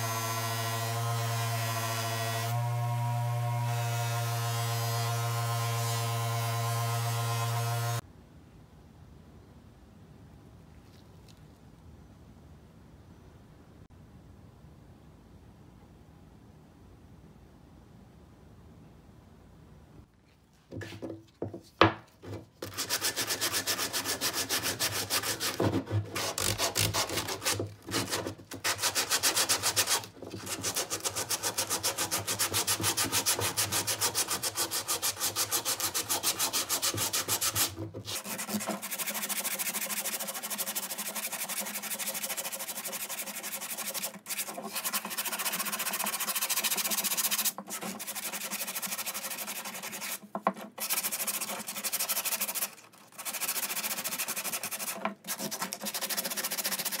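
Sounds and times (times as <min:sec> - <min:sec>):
sandpaper rubbing on wood: 0:22.6 - 0:57.0.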